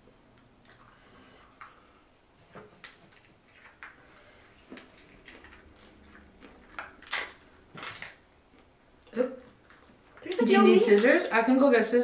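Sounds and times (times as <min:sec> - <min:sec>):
crab shells cracking: 0:04.6 - 0:08.7.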